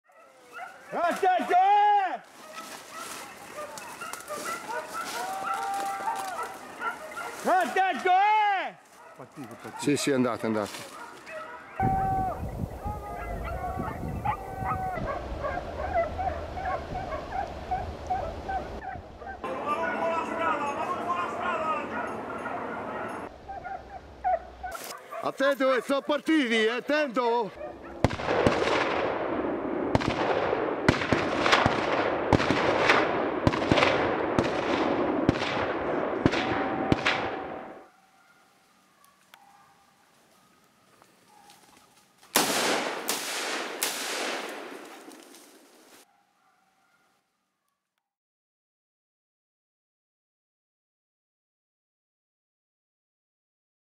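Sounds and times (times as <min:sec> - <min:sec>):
hounds baying and yelping: 0:00.0 - 0:01.2, 0:02.3 - 0:07.8, 0:08.8 - 0:26.7, 0:27.5 - 0:28.1, 0:37.2 - 0:42.1, 0:46.0 - 0:47.8
gunshots with echo: 0:28.0 - 0:37.8, 0:42.4 - 0:44.9.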